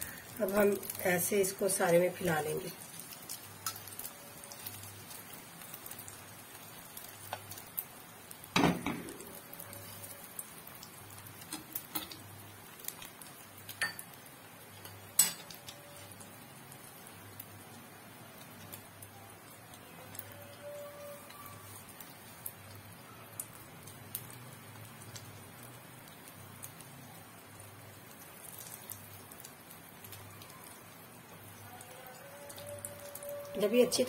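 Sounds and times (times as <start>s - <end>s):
egg sizzling in oil: 0.0s - 34.0s.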